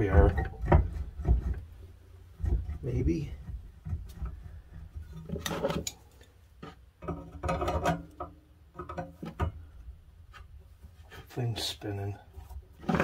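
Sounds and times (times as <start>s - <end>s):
pliers scraping rusted nut: 2.4s - 9.4s.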